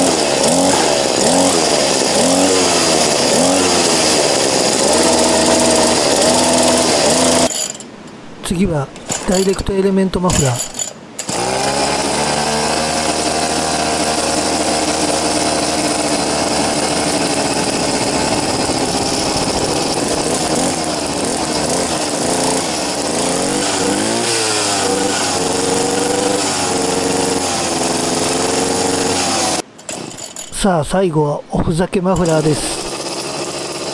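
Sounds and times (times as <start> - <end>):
brush cutter engine idling and revving: 0.0 - 7.7, 9.0 - 30.5, 32.2 - 33.9.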